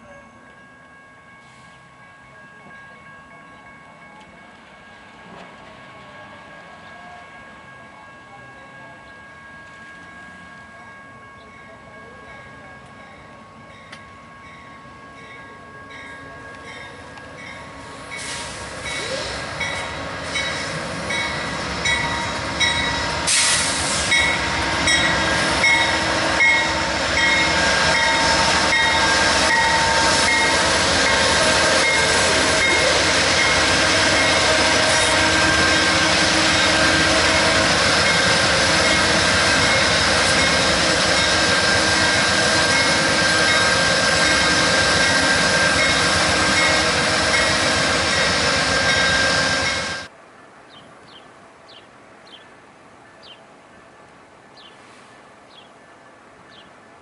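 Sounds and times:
diesel locomotives running: 0:00.0 - 0:50.2
brief hiss: 0:23.3 - 0:24.1.

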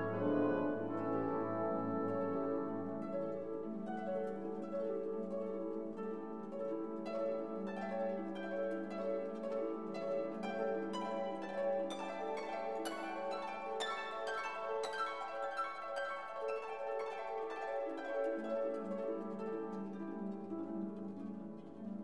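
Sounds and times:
held orchestral chords: 0:00.0 - 0:16.0.

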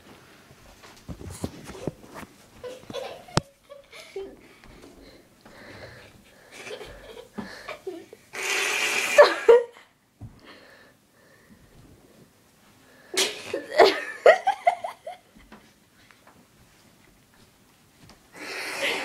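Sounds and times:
person laughing: 0:02.6 - 0:04.6, 0:06.4 - 0:08.2, 0:09.1 - 0:09.8, 0:13.5 - 0:15.6, 0:18.4 - 0:19.0.

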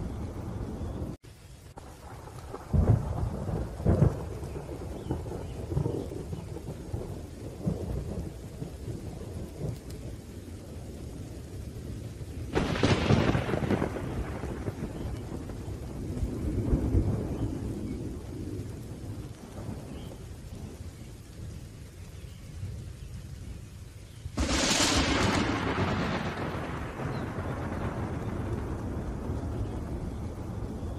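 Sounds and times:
low rolling thunder: 0:00.0 - 0:30.9
steady rain: 0:00.0 - 0:30.9
sharp thunderclap: 0:01.8 - 0:09.8, 0:12.5 - 0:20.7, 0:24.3 - 0:30.9.

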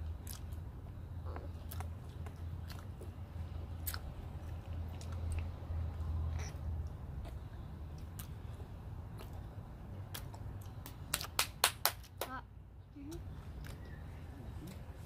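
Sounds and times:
wet chewing of bubble gum: 0:00.0 - 0:11.4.

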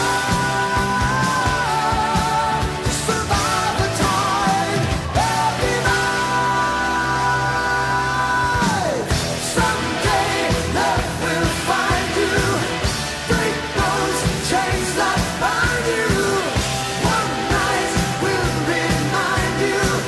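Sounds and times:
rock drum beat: 0:00.0 - 0:07.2, 0:08.4 - 0:20.0
person singing: 0:00.0 - 0:20.0
rock song: 0:00.0 - 0:20.0.

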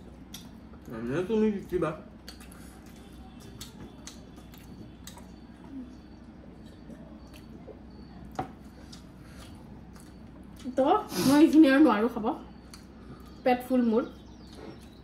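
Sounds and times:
steady low hum: 0:00.0 - 0:15.0
faint chewing: 0:01.6 - 0:10.8, 0:12.5 - 0:13.4, 0:14.1 - 0:15.0
wet mouth clicks and smacks: 0:03.5 - 0:05.4.

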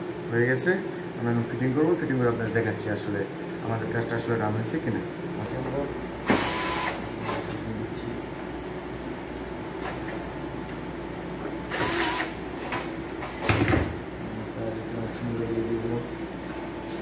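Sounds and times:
cordless drill driving screws: 0:11.7 - 0:12.3.

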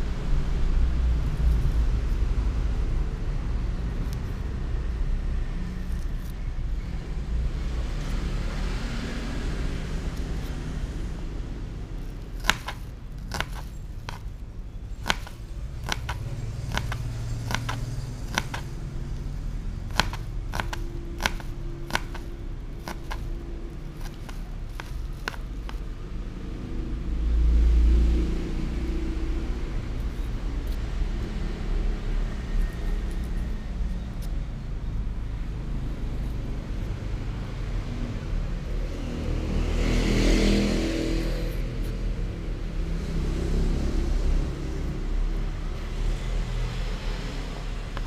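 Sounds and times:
knife clicking on plastic cutting board: 0:12.4 - 0:14.2, 0:15.0 - 0:18.7, 0:19.9 - 0:22.3.

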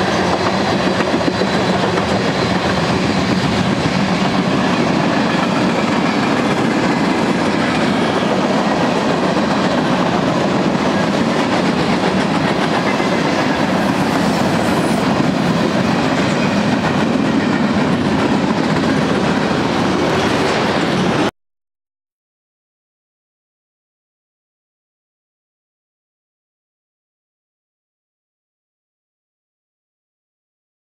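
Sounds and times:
train wheels rumbling on rails: 0:00.0 - 0:21.3.

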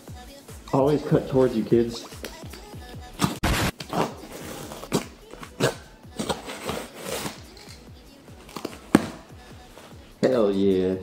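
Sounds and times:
knife cutting tape and cardboard: 0:02.1 - 0:09.3.

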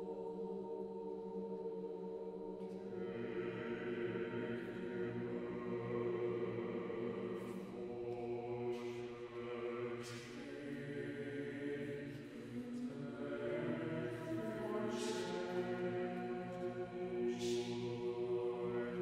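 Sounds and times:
choir singing a cappella: 0:00.0 - 0:19.0.

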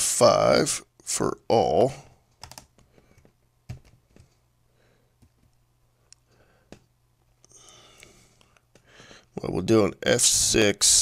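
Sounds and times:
keyboard keys clicking: 0:02.4 - 0:04.4.

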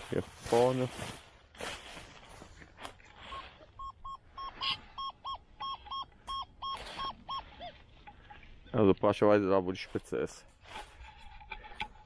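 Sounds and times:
metal detector short high beeps: 0:03.2 - 0:07.8.

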